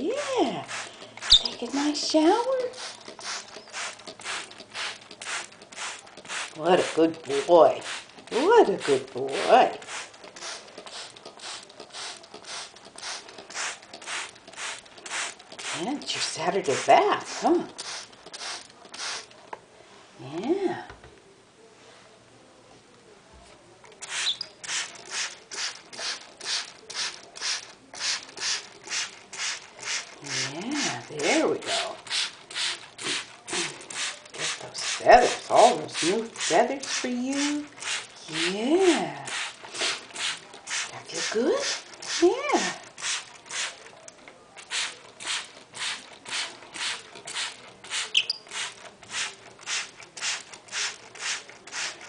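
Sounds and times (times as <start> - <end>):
spray bottle hissing sprays: 0.2 - 2.0, 2.6 - 19.4, 24.0 - 43.9, 44.6 - 52.0
parrot chirp: 1.3 - 1.6, 24.1 - 24.6, 48.1 - 48.4.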